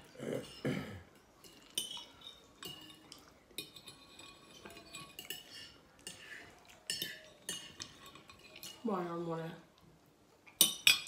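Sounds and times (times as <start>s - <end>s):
fork clinking on china plate: 1.4s - 8.8s, 10.6s - 11.0s.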